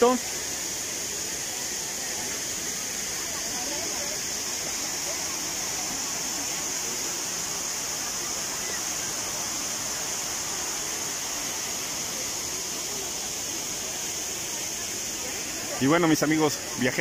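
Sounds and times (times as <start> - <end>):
small waterfall hissing: 0.0 - 17.0.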